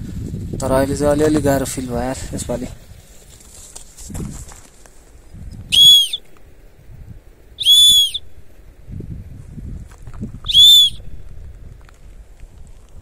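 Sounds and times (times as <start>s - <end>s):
high whistled calls: 5.6s - 6.3s, 7.6s - 8.4s, 10.4s - 11.2s.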